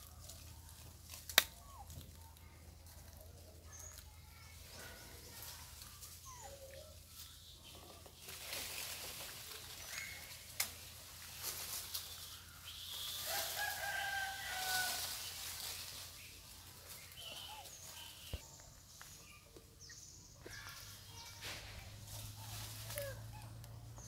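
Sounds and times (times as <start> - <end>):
distant rooster crowing: 13.2 - 15.2.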